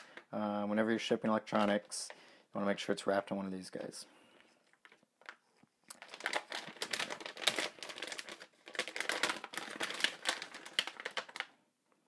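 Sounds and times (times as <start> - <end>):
plastic bag crinkling: 4.6 - 11.6.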